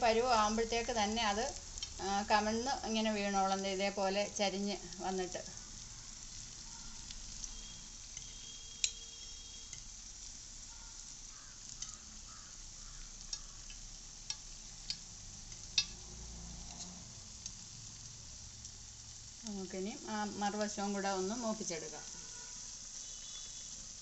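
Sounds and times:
fritters sizzling in oil: 0:00.0 - 0:24.0
metal spoon clicking on pan: 0:08.1 - 0:09.0, 0:09.7 - 0:09.9, 0:11.7 - 0:12.1, 0:13.2 - 0:16.0.

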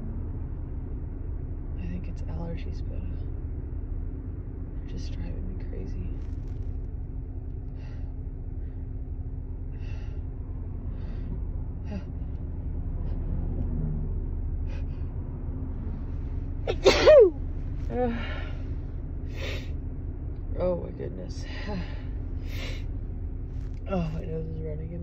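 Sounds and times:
low rumble: 0:00.0 - 0:25.0
faint breaths: 0:07.6 - 0:13.6
woman sneezing: 0:16.7 - 0:17.4.

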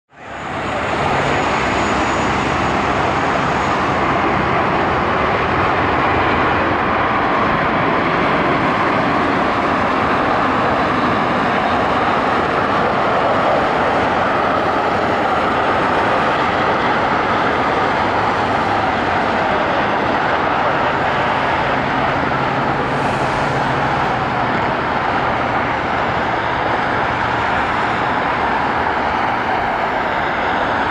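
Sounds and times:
jet engines of airliner: 0:00.1 - 0:30.9.

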